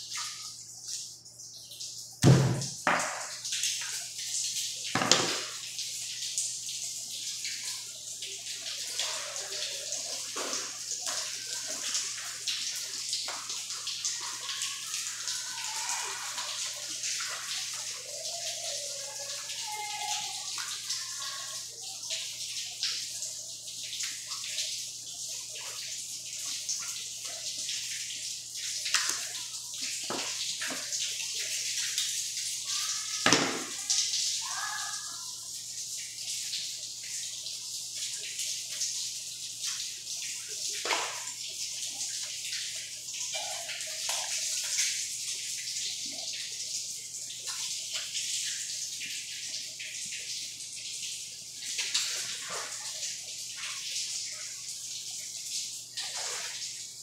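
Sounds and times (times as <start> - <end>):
sharp knocks: 2.2 - 3.3.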